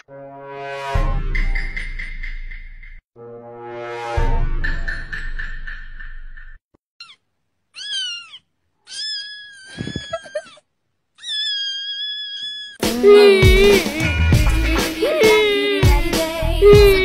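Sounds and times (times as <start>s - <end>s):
kitten meowing: 7.8s - 10.6s, 11.2s - 14.3s.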